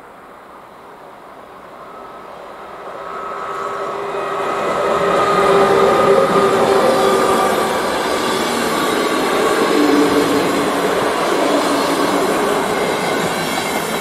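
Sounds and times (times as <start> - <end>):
electric train passing: 0.0 - 14.0
locomotive whine: 0.7 - 14.0
wheels rumbling: 3.4 - 14.0.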